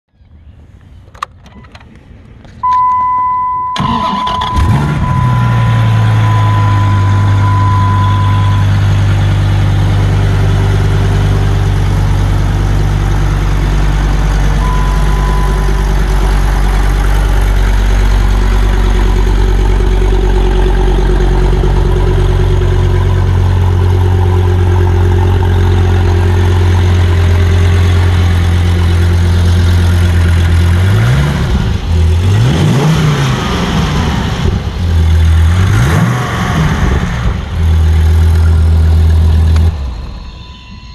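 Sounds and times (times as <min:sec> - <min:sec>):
car engine starting and idling: 0:00.4 - 0:40.9
steady high tone: 0:02.6 - 0:28.3, 0:39.6 - 0:40.9
engine revving: 0:03.8 - 0:39.9.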